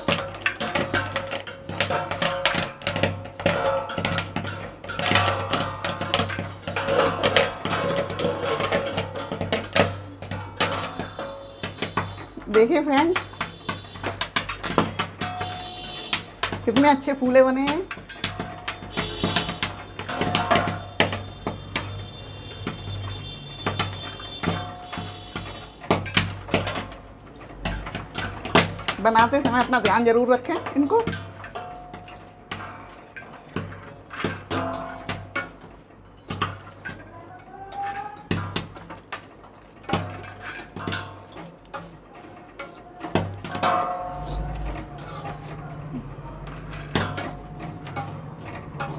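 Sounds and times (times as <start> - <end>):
corn kernels popping: 0.0 - 48.9
metal spoon scraping iron pan: 0.0 - 48.9
metal spatula stirring salt: 23.7 - 45.9.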